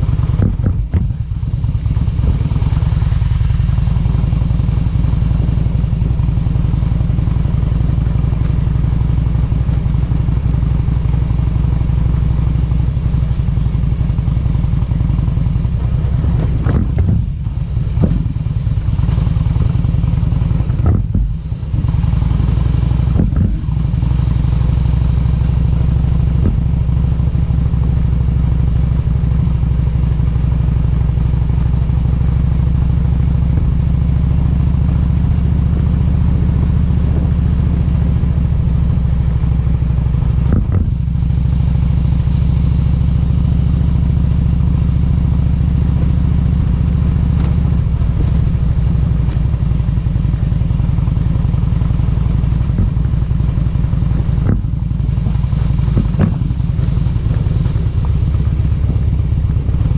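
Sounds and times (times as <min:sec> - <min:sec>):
vehicle engine running: 0:00.0 - 0:59.9.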